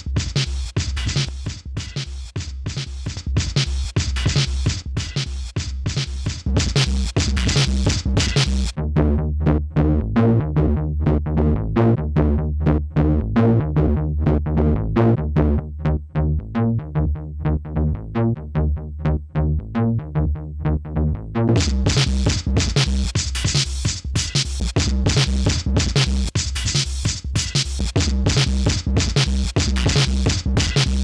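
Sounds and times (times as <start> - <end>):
sustained synth bass line: 6.5 - 23.2, 24.6 - 26.3, 27.8 - 31.0.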